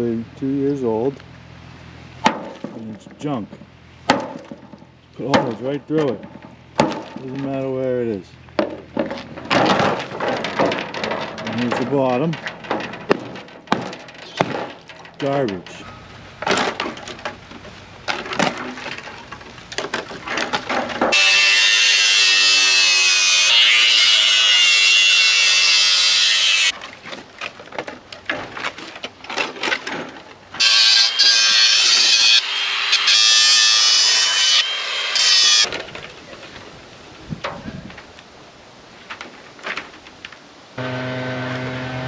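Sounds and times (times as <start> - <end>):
metal clanks and knocks: 2.2 - 7.6, 8.6 - 21.2
angle grinder cutting sheet metal: 21.1 - 26.7, 30.6 - 35.7, 40.8 - 42.0.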